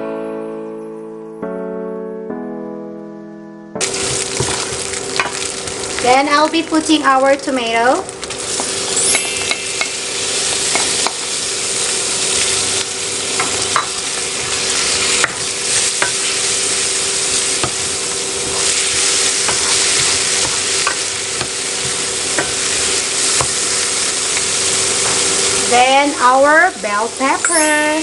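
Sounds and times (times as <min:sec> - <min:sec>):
food sizzling in frying pan: 0:03.8 - 0:28.0
steady hum: 0:03.8 - 0:28.0.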